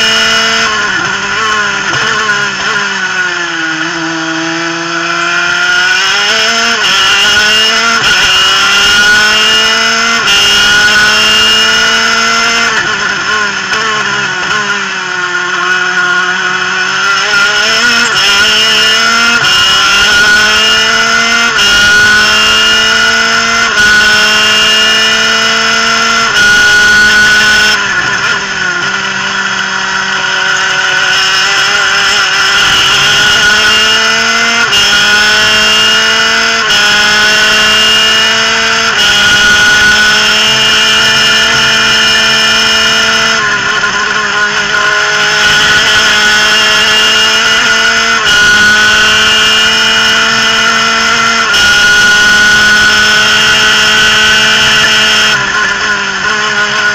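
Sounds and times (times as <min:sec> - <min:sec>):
kart engine at high revs: 0:00.0 - 0:56.9.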